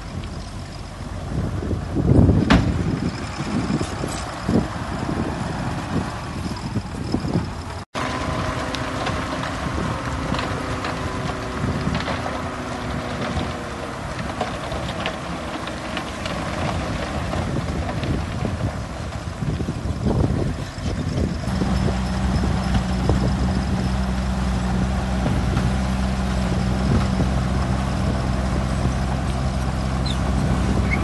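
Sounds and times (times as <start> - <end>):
diesel truck engine running: 0.0 - 31.0
wind on microphone: 1.2 - 15.1, 16.2 - 31.0
soil sliding out: 8.0 - 31.0.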